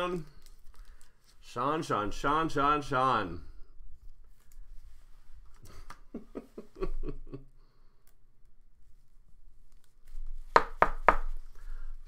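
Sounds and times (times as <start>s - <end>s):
low chuckle: 5.7s - 7.5s.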